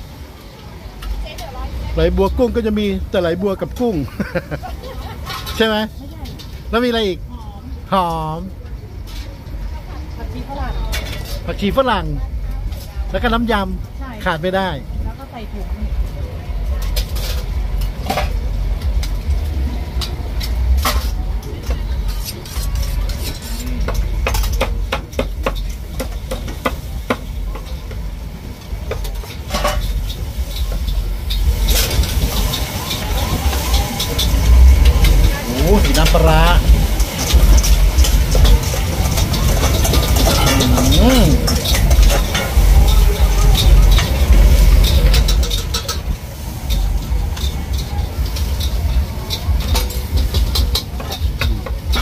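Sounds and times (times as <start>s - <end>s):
utensils clinking on metal bowls: 2.1s - 7.0s, 16.7s - 52.0s
low rumble: 27.9s - 52.0s.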